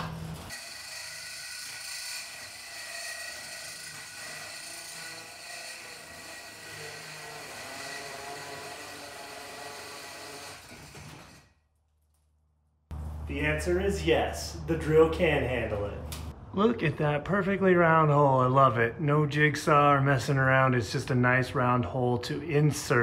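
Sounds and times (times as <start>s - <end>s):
hole saw cutting wood: 0.5s - 11.5s
cordless drill whining under load: 5.8s - 11.4s.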